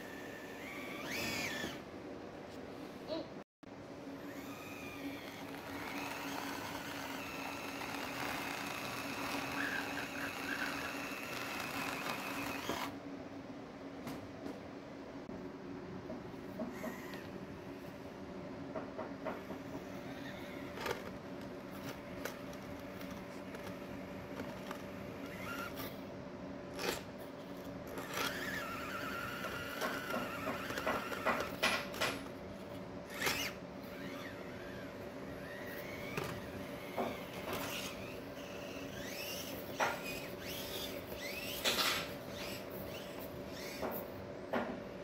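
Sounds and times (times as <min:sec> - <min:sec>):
small electric motor and gear whine: 0:00.0 - 0:01.9, 0:04.0 - 0:13.0, 0:16.7 - 0:17.4, 0:19.3 - 0:26.1, 0:26.7 - 0:32.2, 0:33.0 - 0:44.1.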